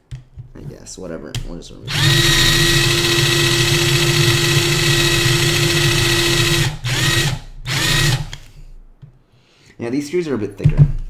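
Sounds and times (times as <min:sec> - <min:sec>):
power drill running: 0:01.9 - 0:08.5.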